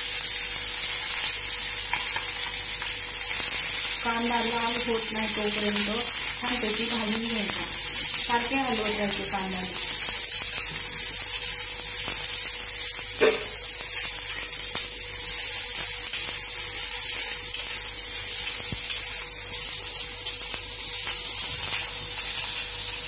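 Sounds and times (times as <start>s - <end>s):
onions sizzling in oil: 0.0s - 23.0s
spoon knock: 13.2s - 13.6s.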